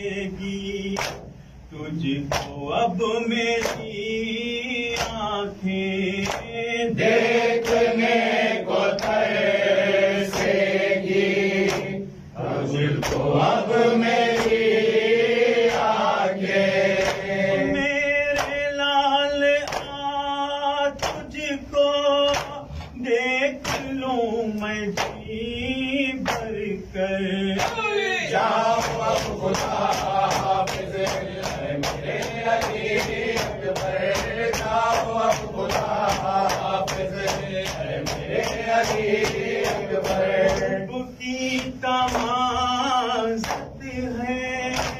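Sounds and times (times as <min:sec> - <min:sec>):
group of men chanting: 0:01.8 - 0:44.9
hands slapping chests: 0:06.2 - 0:06.5, 0:07.6 - 0:08.0, 0:11.6 - 0:12.0, 0:13.0 - 0:13.3, 0:14.2 - 0:14.7, 0:17.0 - 0:17.6, 0:19.6 - 0:20.0, 0:21.0 - 0:21.3, 0:28.6 - 0:40.7, 0:41.6 - 0:42.4
man leading a chant: 0:17.5 - 0:30.0.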